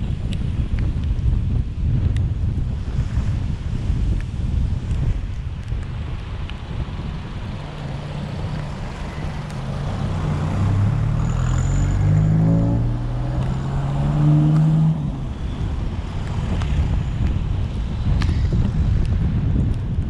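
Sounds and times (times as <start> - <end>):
wind: 0.0 - 20.0
wet-road noise: 2.6 - 20.0
car engine accelerating: 6.6 - 17.0.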